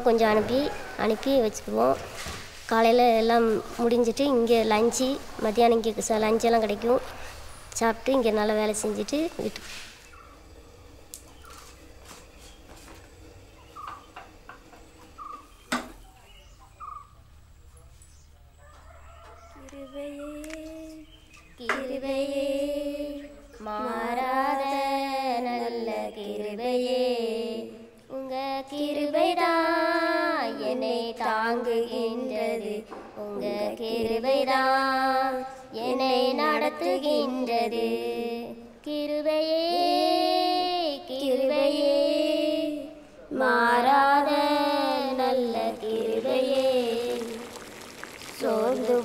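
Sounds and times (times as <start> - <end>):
woman singing a hymn: 19.6 - 47.6, 48.4 - 49.0.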